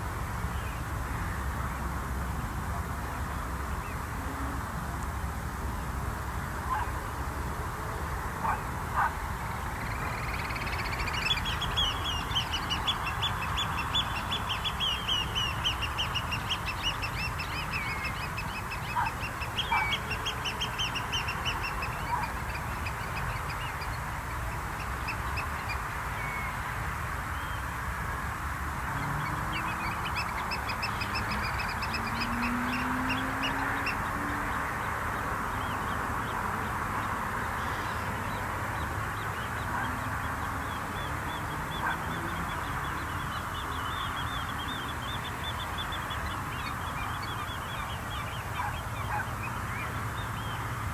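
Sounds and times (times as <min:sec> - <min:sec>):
shorebirds trilling: 0:08.4 - 0:26.3, 0:29.0 - 0:34.2, 0:38.8 - 0:50.7.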